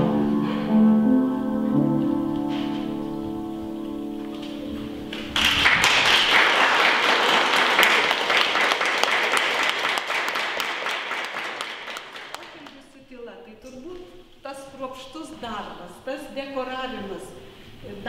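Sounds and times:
piano piece: 0.0s - 12.8s
audience applause: 5.1s - 12.8s.

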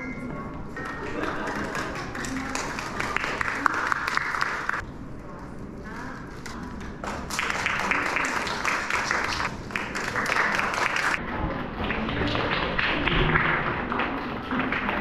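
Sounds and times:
audience applauding: 1.1s - 4.8s, 7.0s - 11.2s.

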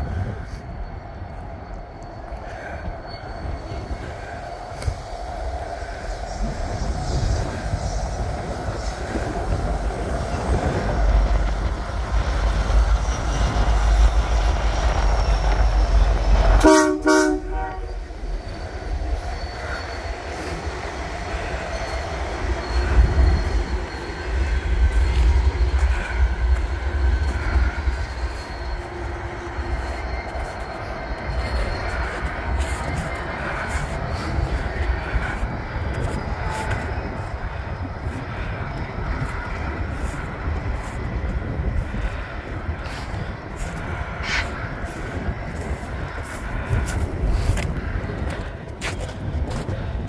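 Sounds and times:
diesel locomotive rumbling past: 0.0s - 50.0s
locomotive horn taps: 16.6s - 17.9s.

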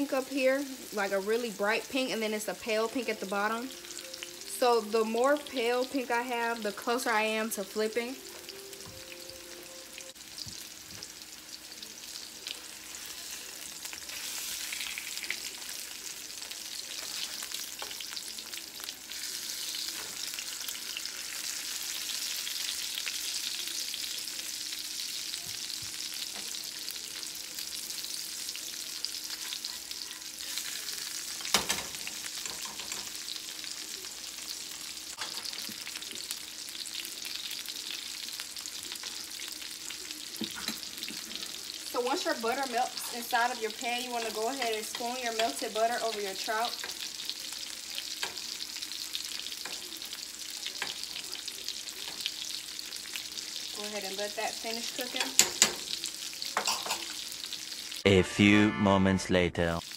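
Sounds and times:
fish sizzling in hot oil: 0.0s - 58.1s.

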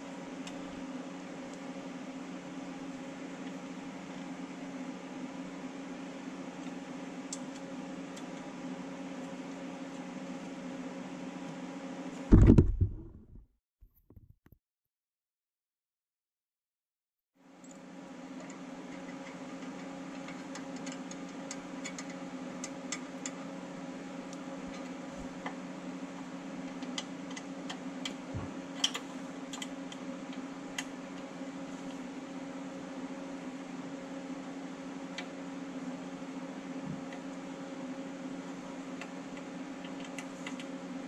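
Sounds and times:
low hum: 12.3s - 13.4s.

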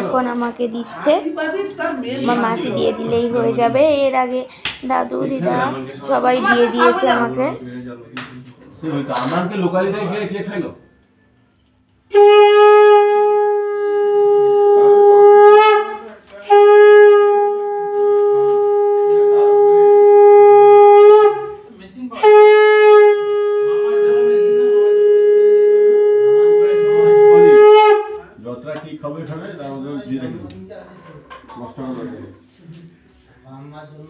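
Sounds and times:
conch shell blasts: 12.1s - 28.2s.

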